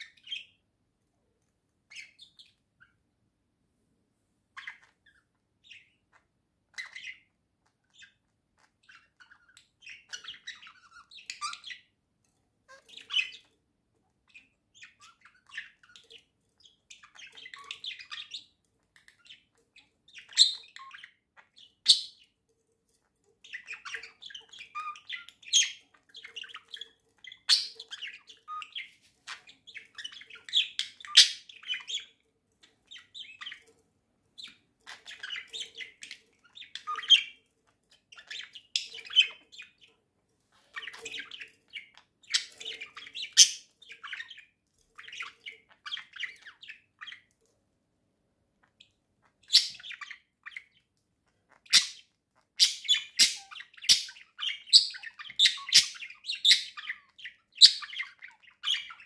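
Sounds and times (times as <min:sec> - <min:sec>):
budgerigars warbling: 0:49.4 - 0:50.8, 0:51.5 - 0:59.0.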